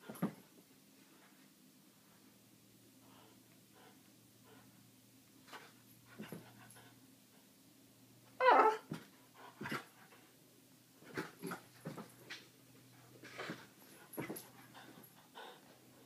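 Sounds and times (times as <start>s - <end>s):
dog pitched cry: 8.4s - 8.9s.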